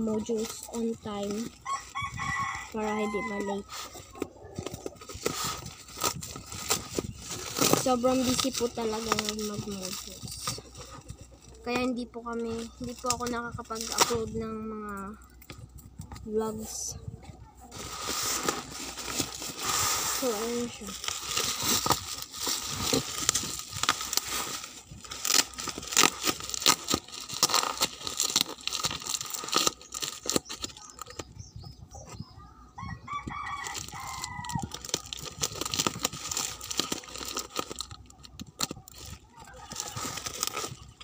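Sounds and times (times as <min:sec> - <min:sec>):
plastic wrapping crinkling: 0:00.0 - 0:15.5, 0:17.7 - 0:31.4, 0:33.3 - 0:41.0
rooster crowing: 0:01.6 - 0:03.7, 0:32.8 - 0:34.8.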